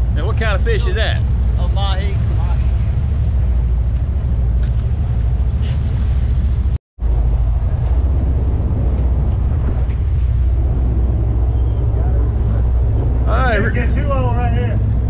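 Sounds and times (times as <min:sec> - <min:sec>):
boat engines droning: 0:00.0 - 0:15.0
rush of boat wake: 0:00.0 - 0:15.0
wind on microphone: 0:00.0 - 0:15.0.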